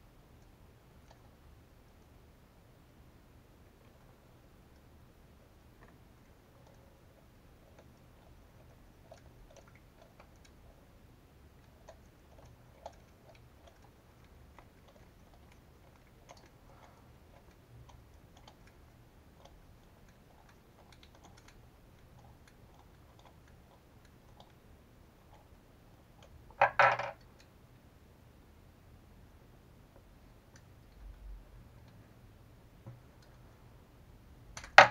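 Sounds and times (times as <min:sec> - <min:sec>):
small parts clicking and tapping: 0:26.2 - 0:27.5, 0:34.6 - 0:34.9
object clattering onto bench: 0:26.6 - 0:27.2.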